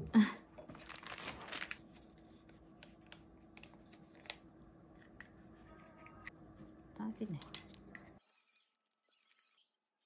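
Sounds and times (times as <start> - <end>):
plastic packaging rustling: 0.7 - 2.2.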